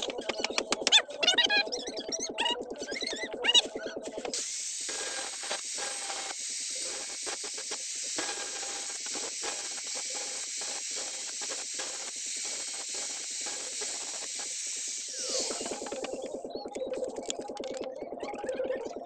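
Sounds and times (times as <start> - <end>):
faint motor whine: 3.6 - 16.8
angle grinder grinding metal: 4.1 - 16.3.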